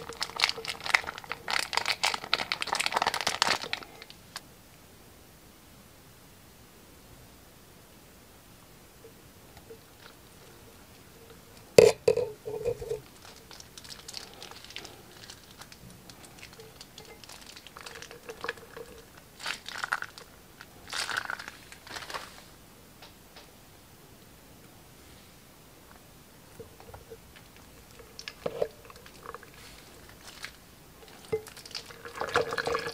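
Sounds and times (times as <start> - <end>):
slime squelching: 12.1 - 22.3, 26.6 - 32.9.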